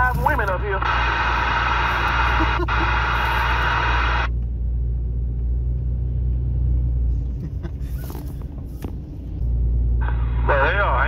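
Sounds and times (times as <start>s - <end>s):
radio receive noise: 0.0s - 4.3s, 10.0s - 11.0s
low road rumble: 0.0s - 11.0s.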